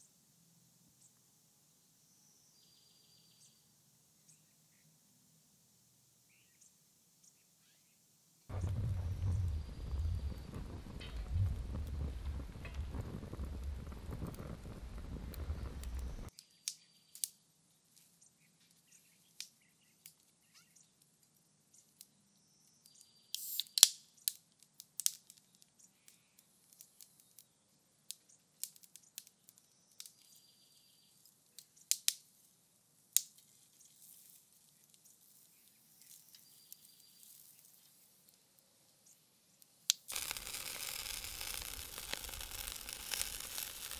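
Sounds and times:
bird chirping: 0:06.3 - 0:17.2, 0:34.7 - 0:38.2
firewood crackling and popping: 0:08.5 - 0:16.3, 0:23.4 - 0:25.7, 0:28.6 - 0:30.2, 0:31.6 - 0:32.3, 0:39.6 - 0:43.9
wind on microphone: 0:08.5 - 0:16.3.

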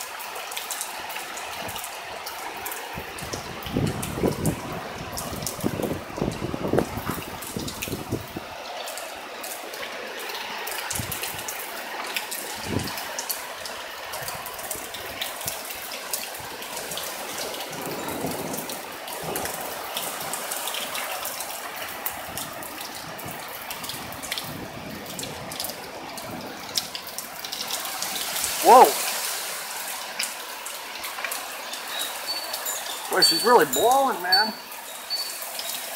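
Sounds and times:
heavy rain pouring: 0:00.0 - 0:35.9
wind buffeting microphone: 0:02.9 - 0:08.6, 0:10.9 - 0:11.4, 0:12.5 - 0:13.0, 0:21.9 - 0:27.0
raindrop ticks: 0:08.8 - 0:28.9, 0:30.1 - 0:35.9.

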